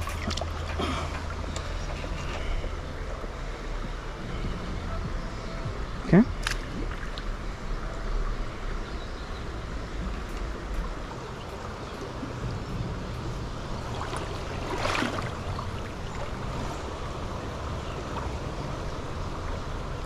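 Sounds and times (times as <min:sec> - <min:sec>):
river rushing: 0:00.0 - 0:20.0.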